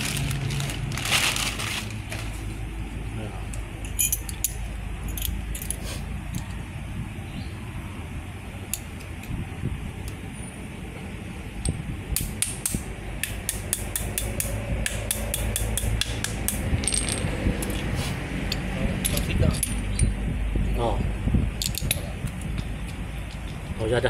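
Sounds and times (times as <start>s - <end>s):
low workshop hum: 0.0s - 24.0s
metallic clicks and clinks: 3.5s - 6.6s, 11.6s - 20.2s, 21.6s - 23.6s.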